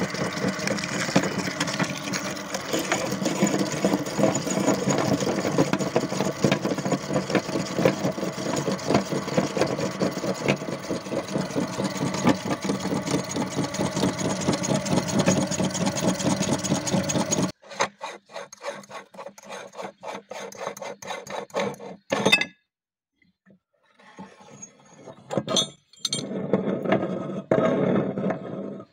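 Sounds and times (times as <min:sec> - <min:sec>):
meat grinder grinding plastic: 0:00.0 - 0:22.1.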